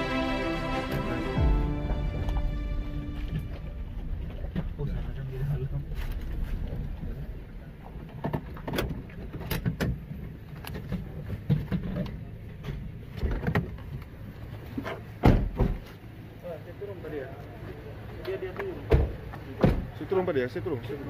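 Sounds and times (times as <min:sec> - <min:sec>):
car rolling over gravel: 0:03.4 - 0:09.4.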